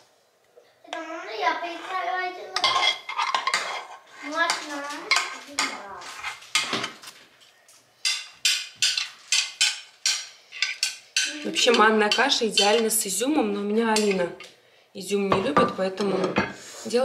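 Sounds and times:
metal spoon scraping saucepan: 1.8 - 6.8, 8.0 - 14.3, 15.6 - 17.0
spoon clinking on bowls: 8.0 - 13.0, 13.9 - 14.3.

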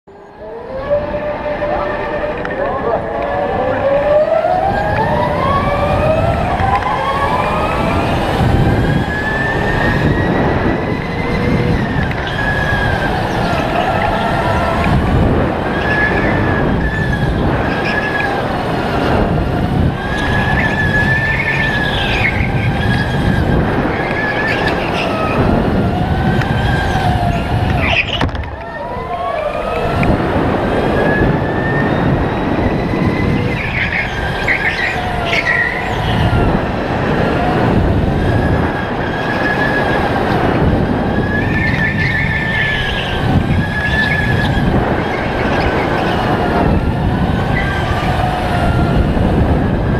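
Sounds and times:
kart chassis rumbling on track: 0.1 - 49.9
tyres squealing: 9.0 - 29.7, 30.9 - 36.6, 38.3 - 48.5.

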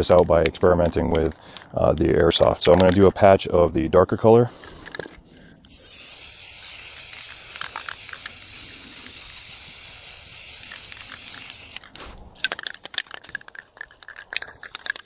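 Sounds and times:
spray can hissing: 5.7 - 12.0.

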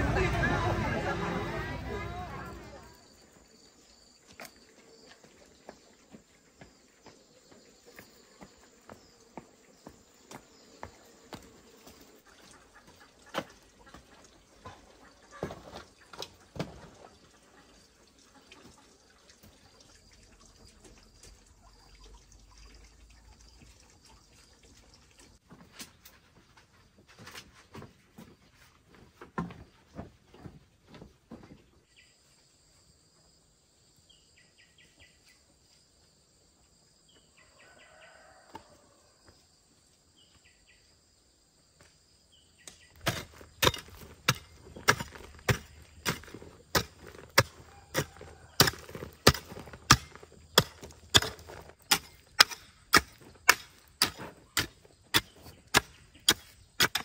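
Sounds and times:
chopping strikes: 43.0 - 57.0.

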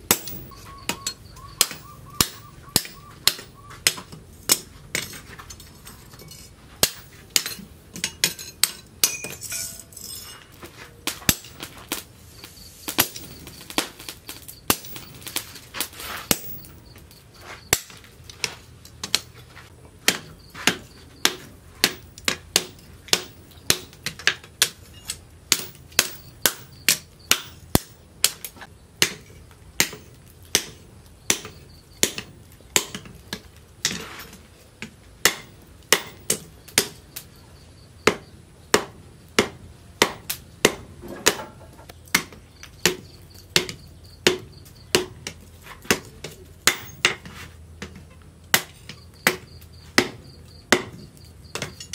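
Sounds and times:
hammer striking metal on anvil: 0.0 - 10.4, 12.9 - 13.9.

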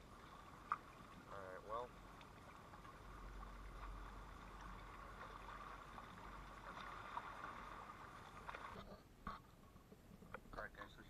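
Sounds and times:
stream running over gravel: 0.0 - 8.8.

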